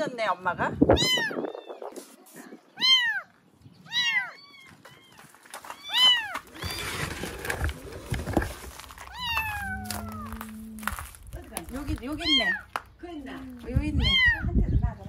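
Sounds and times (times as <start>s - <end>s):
kittens mewing: 0.9s - 8.3s, 8.9s - 11.3s, 13.9s - 14.5s
cardboard box rustling and knocking: 6.3s - 10.0s.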